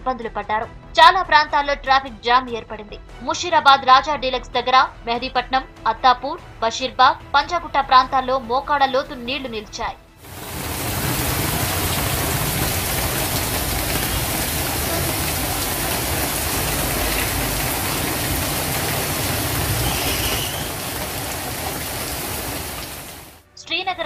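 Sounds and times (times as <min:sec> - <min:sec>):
heavy rain pouring on street: 0:10.2 - 0:23.4.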